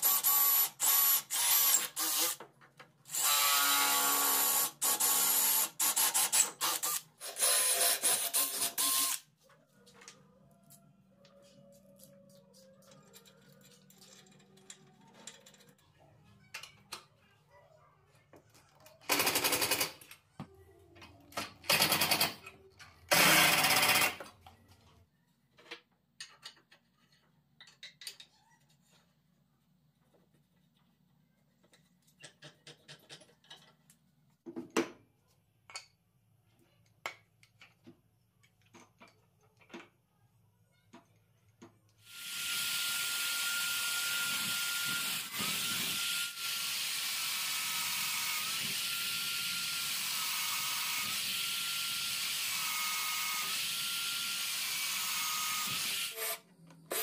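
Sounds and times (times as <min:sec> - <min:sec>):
drill whining through steel: 0:00.0 - 0:02.4, 0:03.1 - 0:09.2, 0:23.1 - 0:24.2, 0:42.0 - 0:57.0.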